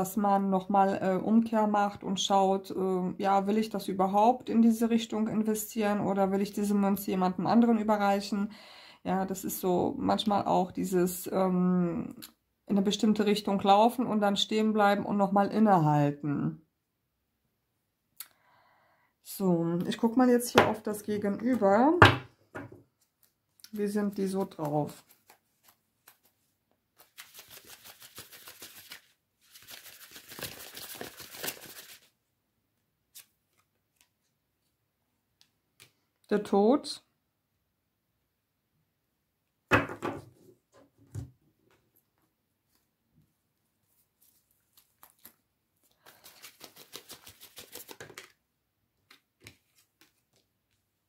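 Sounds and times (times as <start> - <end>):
cards being shuffled: 23.0 - 32.1, 33.1 - 34.3, 43.9 - 48.4, 49.0 - 50.8
cards flicking through deck: 46.0 - 48.3.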